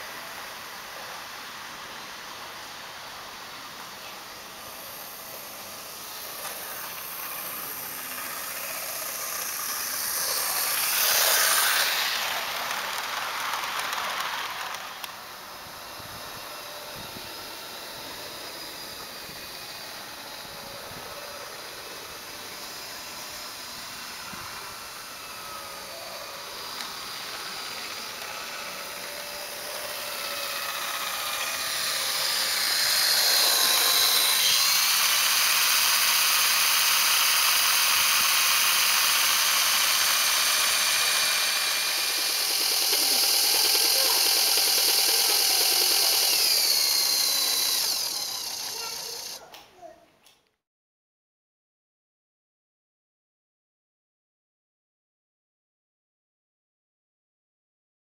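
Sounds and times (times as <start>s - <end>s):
electric motor whine: 0.0s - 49.4s
model train wheel and rail noise: 0.0s - 49.9s.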